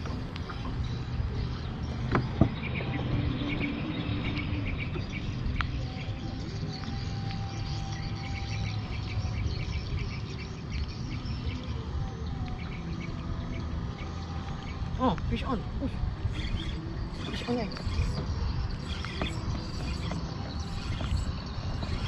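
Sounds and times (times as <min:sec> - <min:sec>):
birds chirping: 0:00.0 - 0:22.0
insects chirping: 0:16.1 - 0:22.0.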